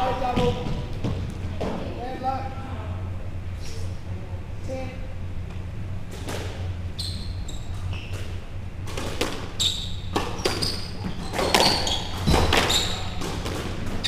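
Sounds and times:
low hum: 0.0 - 14.0
shoes squeaking on wooden floor: 6.9 - 8.4, 9.2 - 14.0.

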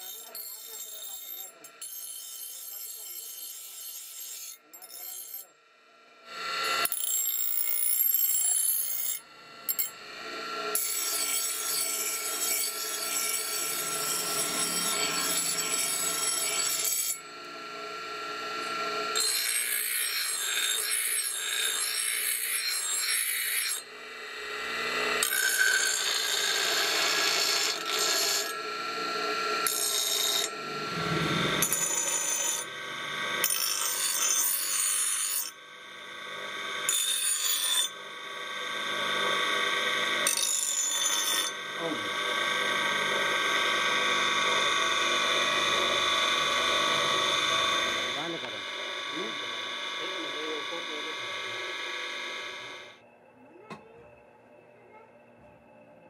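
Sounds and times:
grinder wheel grinding metal: 0.0 - 53.0
grinder whine: 0.0 - 56.0.

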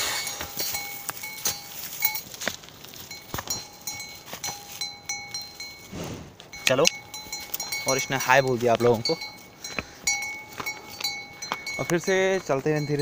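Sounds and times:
rustling dry grass: 0.0 - 11.7
cow bell ringing: 0.0 - 13.0.

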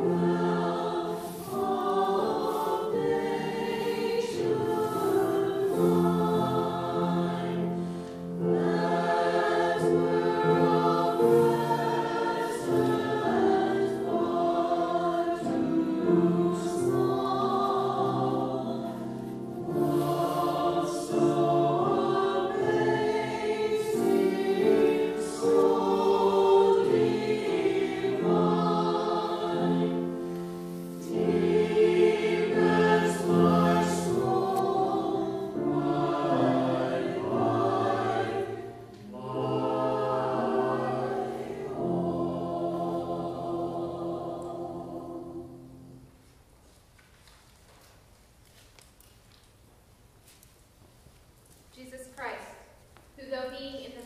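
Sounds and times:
choir singing: 0.0 - 46.1.

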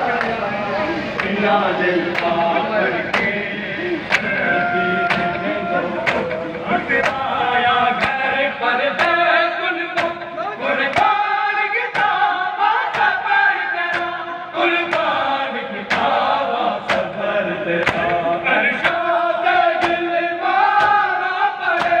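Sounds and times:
men chanting a lament: 0.0 - 22.0
hands slapping chests: 4.1 - 4.4, 6.0 - 6.4, 15.9 - 16.1, 16.9 - 17.1, 17.8 - 18.2, 19.8 - 20.0, 20.8 - 21.0, 21.8 - 22.0.

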